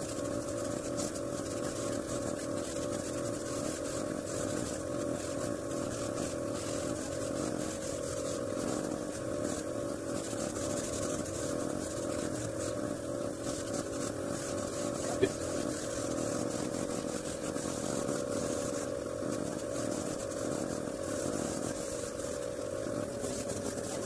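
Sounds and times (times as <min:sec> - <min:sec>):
air compressor motor running: 0:00.0 - 0:24.0
airbrush spraying hiss: 0:13.4 - 0:24.0.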